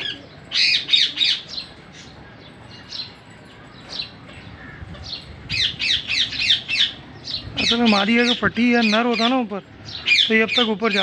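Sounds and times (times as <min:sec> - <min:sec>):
parakeets squawking: 0:04.4 - 0:11.0.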